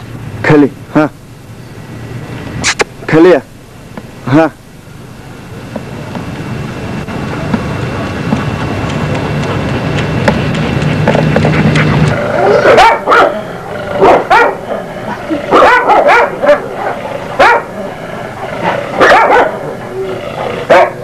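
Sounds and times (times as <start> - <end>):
dog barking: 12.5 - 14.9, 15.5 - 17.8, 18.6 - 19.8, 20.4 - 21.0.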